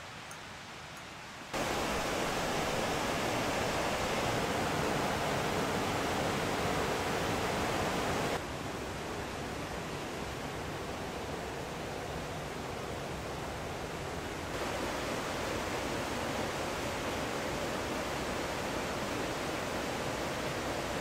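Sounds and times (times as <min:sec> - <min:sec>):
waterfall rushing: 0:01.5 - 0:08.4, 0:14.5 - 0:21.0.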